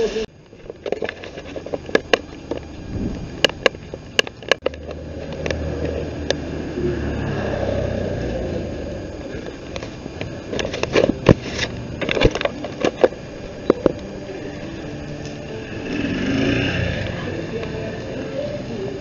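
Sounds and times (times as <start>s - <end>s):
vehicle engine rumble: 0.0s - 19.0s
sharp clicks and knocks: 0.7s - 6.4s.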